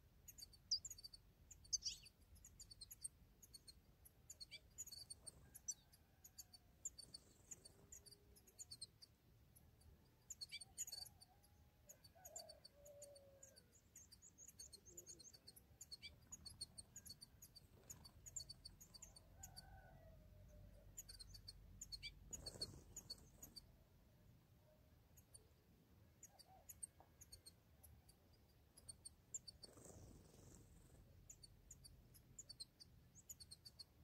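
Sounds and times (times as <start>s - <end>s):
songbirds chirping: 0.0s - 34.0s
soft whistled bird calls: 0.3s - 9.0s, 10.3s - 23.6s.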